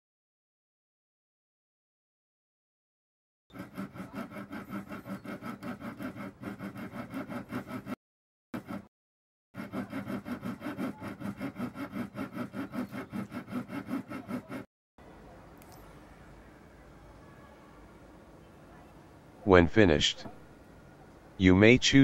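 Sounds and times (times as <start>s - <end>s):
hand saw cutting plastic: 3.5s - 8.0s, 8.6s - 8.9s, 9.6s - 14.7s.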